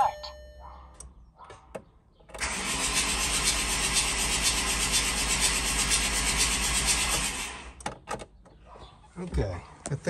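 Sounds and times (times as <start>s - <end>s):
starter motor cranking diesel engine: 2.4s - 7.8s.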